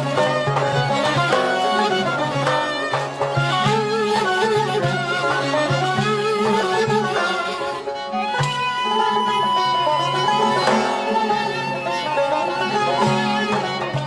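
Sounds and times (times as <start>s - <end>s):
held wind note: 0.0s - 14.0s
plucked string ensemble: 0.0s - 14.0s
frame drum strikes: 10.5s - 11.4s.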